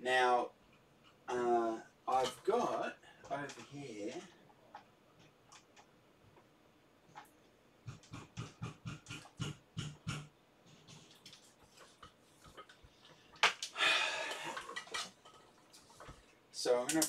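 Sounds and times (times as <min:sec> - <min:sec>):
knocks and rattles of handling: 0:02.1 - 0:06.5, 0:07.1 - 0:13.7, 0:14.3 - 0:16.3.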